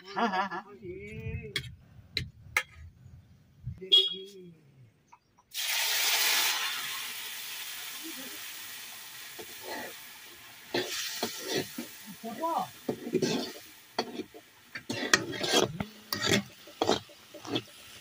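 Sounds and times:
food sizzling in hot oil: 5.5 - 18.0
spatula scraping pan: 9.4 - 10.0, 10.7 - 12.0, 12.8 - 18.0.

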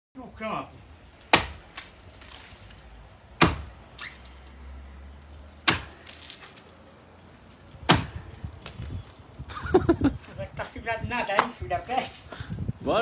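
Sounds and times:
blade chopping into tree trunk: 1.3 - 2.8, 3.4 - 4.2, 5.6 - 6.6, 7.8 - 8.9.

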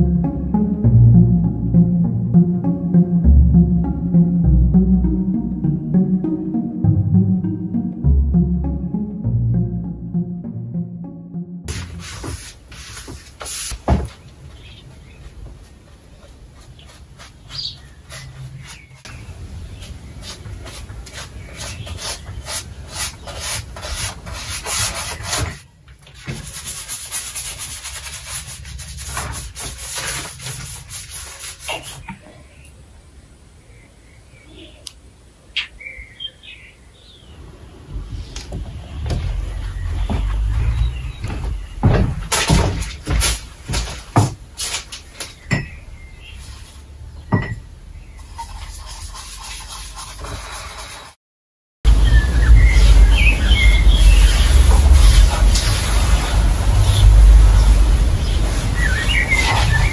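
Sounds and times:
charcoal scratching on paper: 20.2 - 25.6, 26.2 - 32.1, 48.2 - 51.2
paint bowl knocks and clinks: 47.3 - 47.7.

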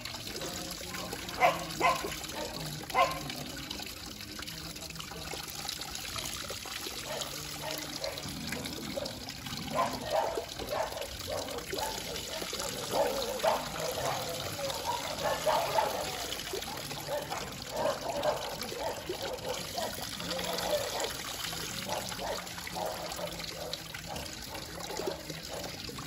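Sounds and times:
tap running into basin: 0.0 - 26.0
water splashing from dipper: 0.0 - 26.0.

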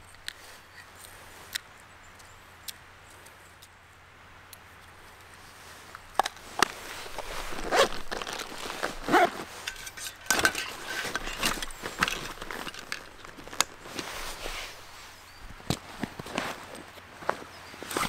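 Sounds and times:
fabric rustling: 5.6 - 18.0.

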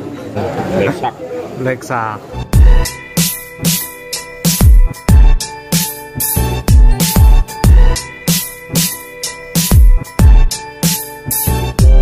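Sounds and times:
electronic dance music: 2.4 - 12.0.

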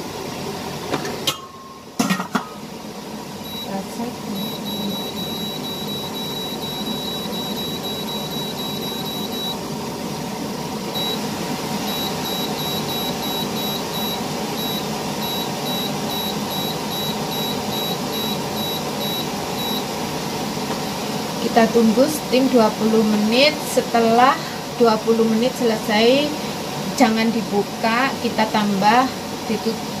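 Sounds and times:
control panel beeps: 3.4 - 3.8, 4.4 - 9.6, 11.0 - 11.2, 11.8 - 19.9
steady whir: 4.4 - 9.6, 10.9 - 19.8.

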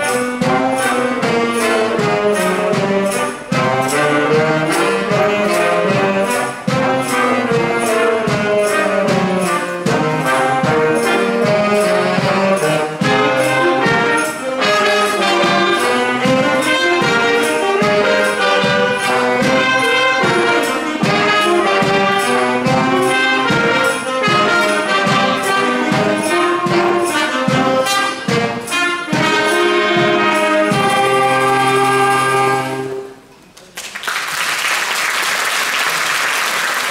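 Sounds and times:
brass instrumental music: 0.0 - 33.3
applause: 33.6 - 36.9.

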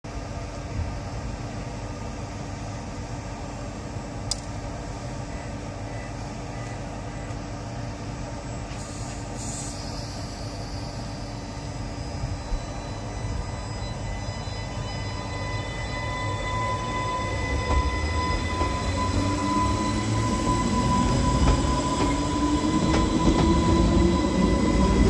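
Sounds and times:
electric train low hum: 0.0 - 25.0
brief click: 4.3 - 4.5.

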